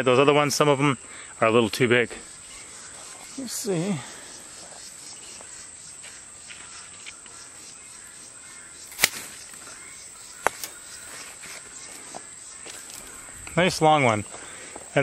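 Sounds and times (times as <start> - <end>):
insects chirping: 0.0 - 15.0
pruners snipping stem: 8.9 - 9.5.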